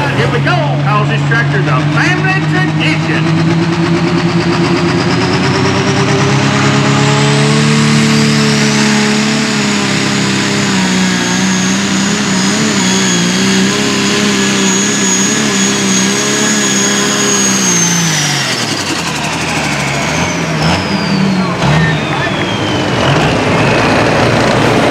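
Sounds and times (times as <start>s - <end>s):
diesel engine running flat out: 0.0s - 24.9s
turbo whistle: 20.2s - 23.7s.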